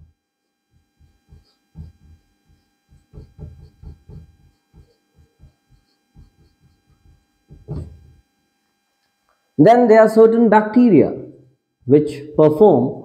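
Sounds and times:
faint electrical hum: 0.0 - 13.0
marker writing on whiteboard: 0.9 - 8.0
knock on whiteboard: 1.0 - 8.2.

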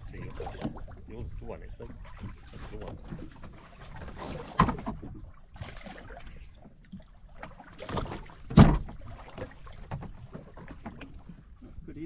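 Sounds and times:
water: 0.0 - 12.0
wind: 0.0 - 12.0
knocks on boat: 4.4 - 5.0, 7.9 - 11.0.

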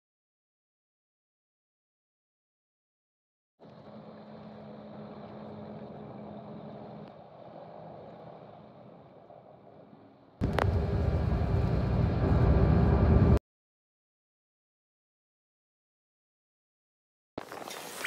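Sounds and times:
loud drone: 10.4 - 13.4
vehicle engine and road hum: 10.4 - 13.4.

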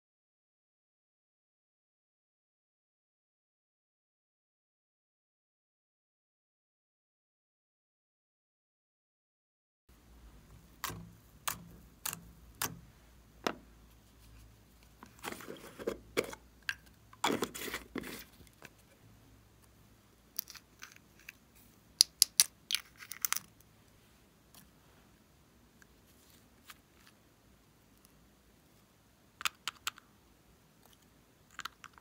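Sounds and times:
sharp plastic clicks: 10.7 - 12.8
rustling and scraping: 13.4 - 16.4, 17.2 - 19.0, 26.0 - 27.2.

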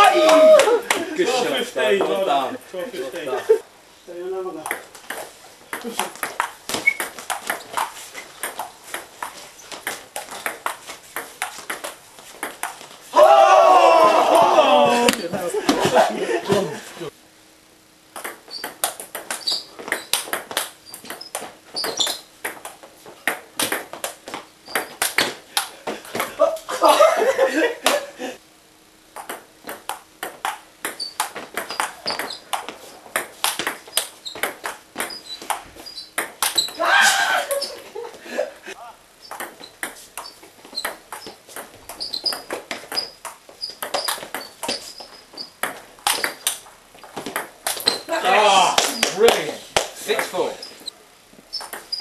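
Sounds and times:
ping-pong ball bouncing on table: 4.6 - 12.7, 18.2 - 25.3, 29.2 - 35.6, 36.2 - 36.7, 39.3 - 44.5, 45.6 - 46.6, 47.2 - 48.0, 51.6 - 52.0
ping-pong ball on paddles: 4.6 - 12.8, 18.2 - 26.3, 29.2 - 36.8, 39.2 - 48.1, 51.5 - 52.0.

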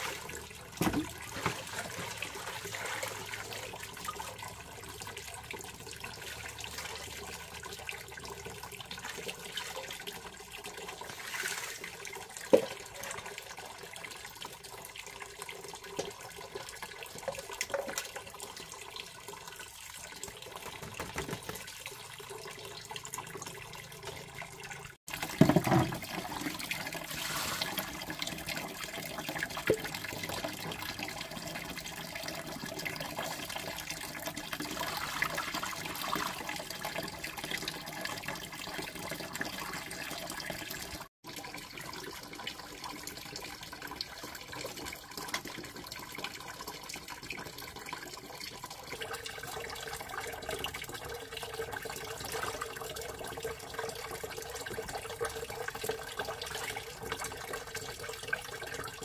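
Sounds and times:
water splashing: 0.0 - 4.3, 25.1 - 28.4, 34.6 - 36.6
stream water trickling: 0.0 - 59.0.

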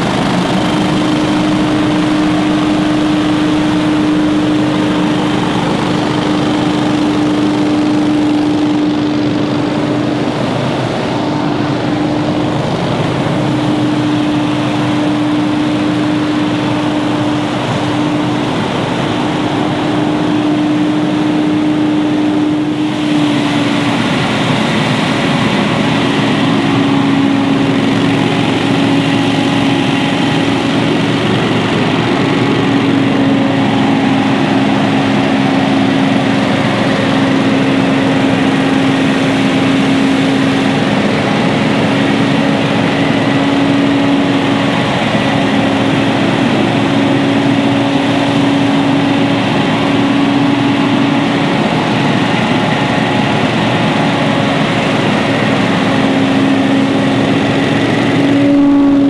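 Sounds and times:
leaf blower engine drone: 0.0 - 59.0.

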